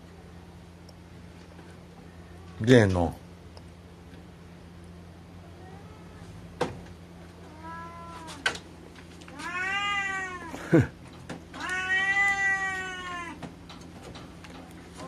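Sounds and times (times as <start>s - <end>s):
cat meowing: 5.6s - 6.3s, 7.5s - 8.4s, 9.3s - 10.6s, 11.6s - 13.4s.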